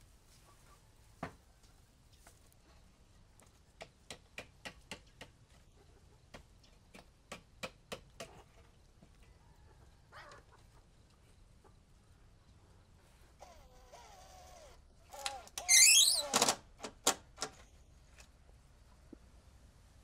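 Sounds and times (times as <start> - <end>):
chicken clucking: 0.3 - 2.5, 5.5 - 6.5, 8.2 - 12.8.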